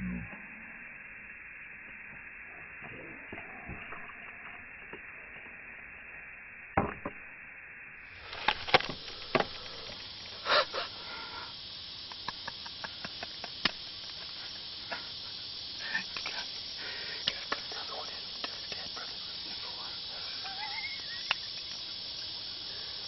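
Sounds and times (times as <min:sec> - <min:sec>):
faint steady hiss: 0:07.4 - 0:23.0.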